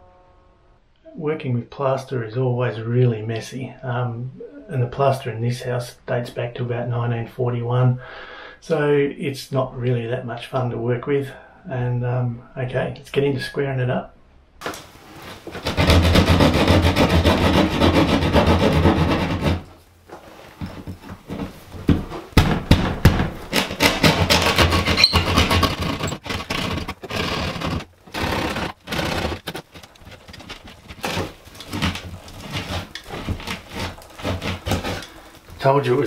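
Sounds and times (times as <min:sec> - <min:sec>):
hand saw rasping plaster: 0:15.2 - 0:19.8, 0:20.6 - 0:36.0.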